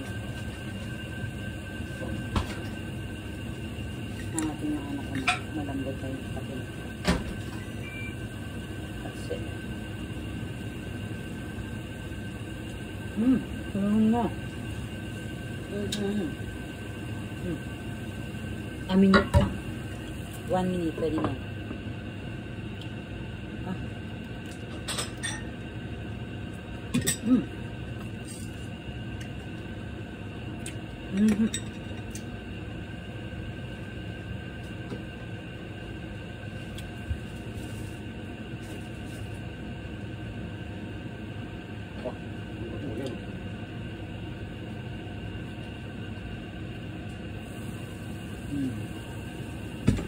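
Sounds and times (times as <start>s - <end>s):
gas stove rumble: 0.0s - 50.0s
steady hum: 0.0s - 50.0s.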